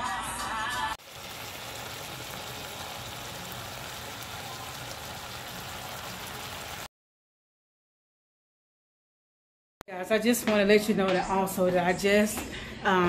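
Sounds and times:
vegetables sizzling in a pan: 0:01.0 - 0:06.9.

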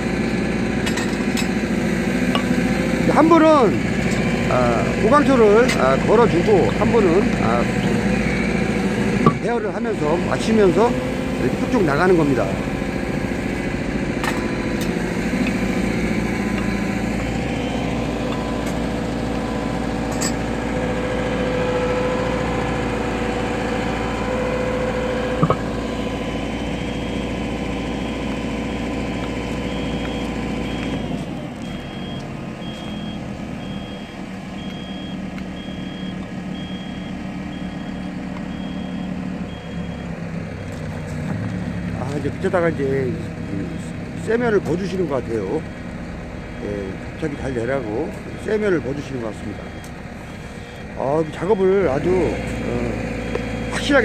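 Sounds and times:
excavator diesel engine running: 0:00.0 - 0:54.0
backup alarm beeping: 0:11.6 - 0:22.7, 0:23.4 - 0:40.2, 0:49.3 - 0:54.0.

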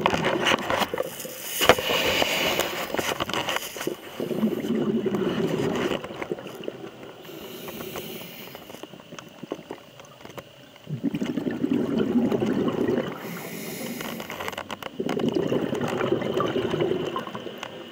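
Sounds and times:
exhaled bubbles rumbling underwater: 0:00.0 - 0:17.9
regulator hiss: 0:00.9 - 0:10.8, 0:12.9 - 0:14.8.

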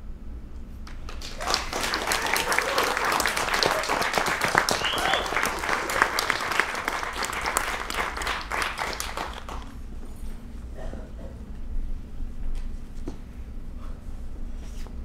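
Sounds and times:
audience applauding: 0:00.8 - 0:09.8.

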